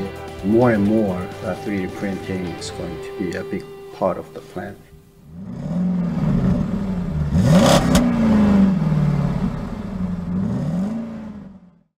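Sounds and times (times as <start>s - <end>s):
vehicle engine revving: 4.9s - 11.9s
sharp crack: 7.4s - 8.8s.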